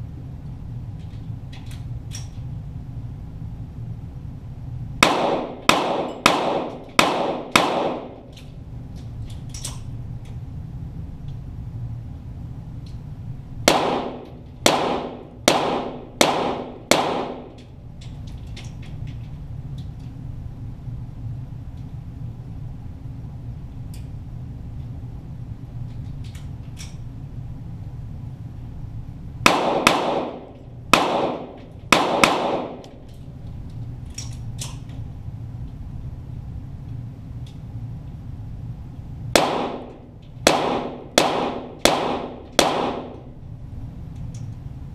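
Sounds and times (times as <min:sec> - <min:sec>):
pistol shots with echo: 0:05.0 - 0:08.3, 0:13.7 - 0:17.6, 0:29.4 - 0:33.0, 0:39.4 - 0:43.3.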